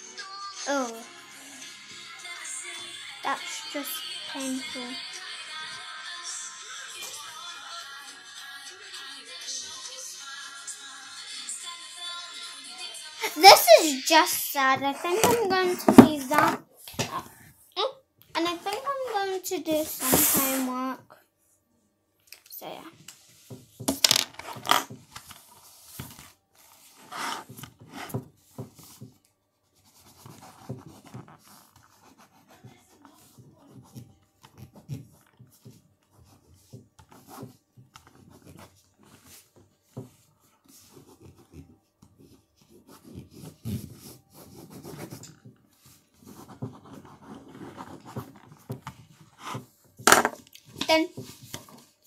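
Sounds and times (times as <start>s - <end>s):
pen scratching on paper: 14.8s - 16.6s, 19.9s - 20.7s, 25.6s - 29.0s, 29.8s - 49.7s.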